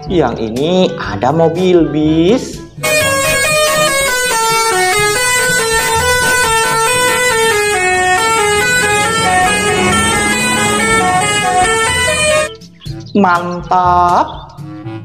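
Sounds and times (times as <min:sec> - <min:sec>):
multi-tone bus horn tune: 0:02.8 - 0:12.6.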